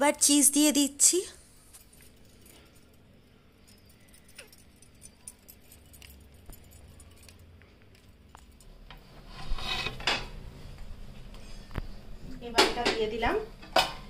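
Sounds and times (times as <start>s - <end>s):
crockery clinking: 1.8s - 8.8s.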